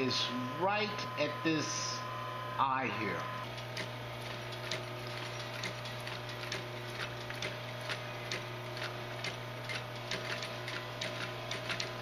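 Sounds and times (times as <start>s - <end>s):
sewing machine motor hum: 0.0s - 12.0s
sewing machine stitch clicks: 4.6s - 12.0s.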